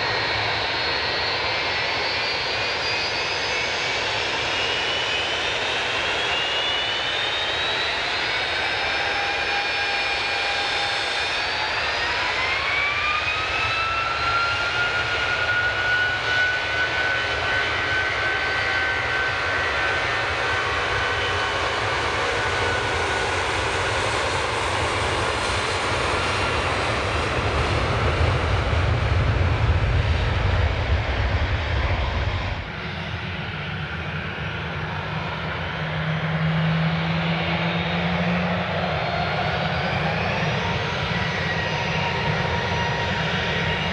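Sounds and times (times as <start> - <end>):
jet engines spooling up: 0.0 - 43.9
deep rumble: 27.5 - 35.9.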